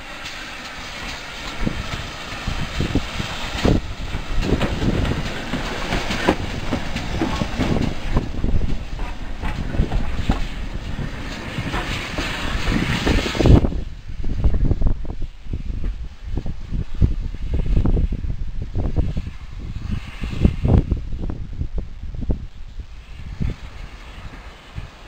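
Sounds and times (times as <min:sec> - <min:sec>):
steam locomotive rumbling: 0:00.0 - 0:25.0
wheels knocking and clanking: 0:00.2 - 0:13.7.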